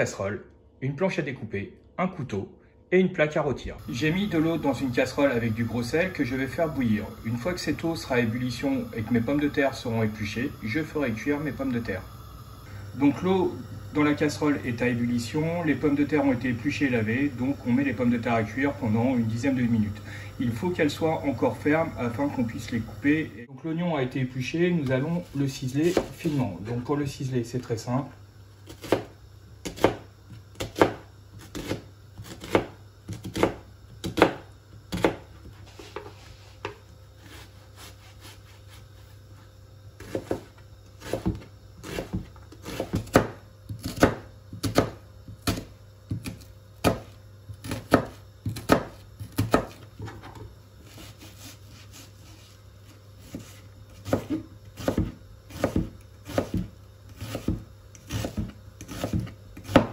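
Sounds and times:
knife chopping on cutting board: 25.8 - 26.4, 28.7 - 38.8, 40.0 - 52.5, 53.2 - 59.9.

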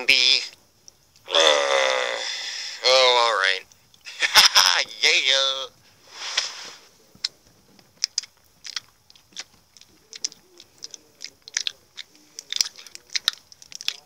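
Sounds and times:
people chewing candy: 7.0 - 14.0.

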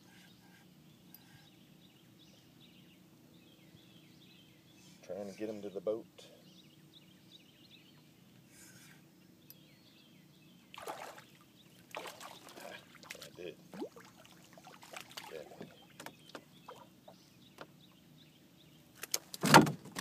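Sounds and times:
fish splashing and thrashing: 10.8 - 11.3, 11.9 - 16.4.

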